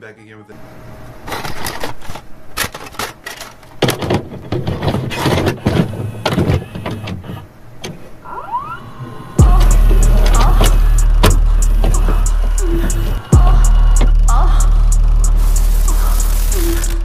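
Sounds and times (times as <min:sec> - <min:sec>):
static bursts and clicks: 0:01.2 - 0:08.1, 0:09.3 - 0:17.0
rising mechanical whir: 0:08.2 - 0:17.0.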